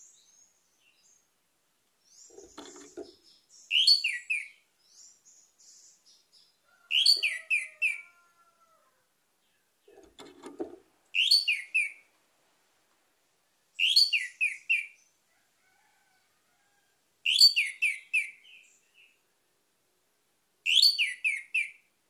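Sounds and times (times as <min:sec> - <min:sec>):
thrush singing whistled notes: 0:11.2 - 0:12.0.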